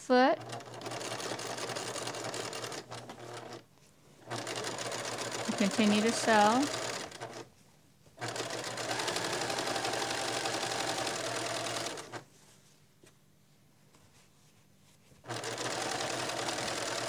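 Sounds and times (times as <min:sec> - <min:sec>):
sewing machine stitching: 0:00.4 - 0:03.6, 0:04.3 - 0:07.5, 0:08.2 - 0:12.2, 0:15.3 - 0:17.0.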